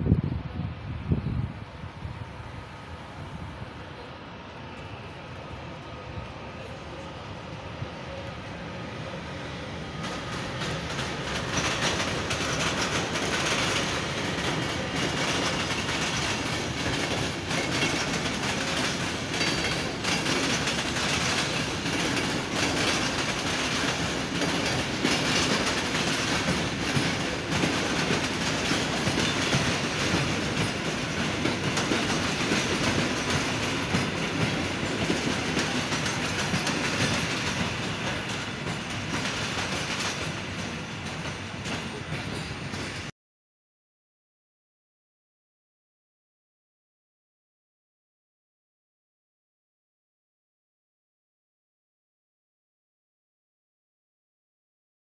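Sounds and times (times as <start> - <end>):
train wheels clacking over rail joints: 10.0 - 43.1.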